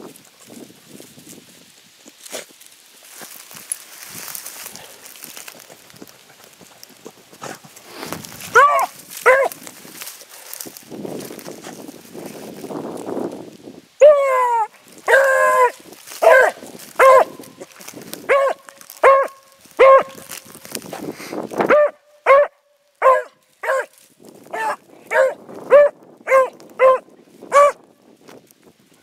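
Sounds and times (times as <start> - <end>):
hound baying and barking: 8.4 - 9.6, 14.0 - 20.6, 21.7 - 27.8.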